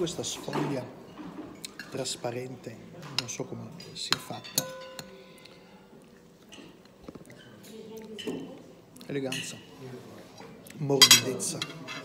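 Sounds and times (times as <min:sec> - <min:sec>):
light cutlery taps: 0:03.0 - 0:05.6
spoon clinking against plate: 0:03.2 - 0:05.7.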